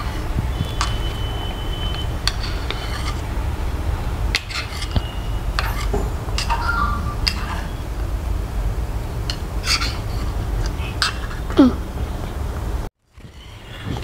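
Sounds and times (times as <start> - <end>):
low hum: 0.0 - 14.0
metal spoon clinking on steel bowl: 4.4 - 6.6.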